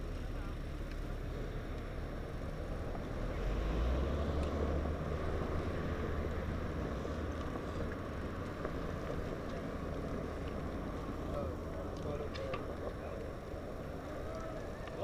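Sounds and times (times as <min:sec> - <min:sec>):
road noise: 0:00.0 - 0:15.0.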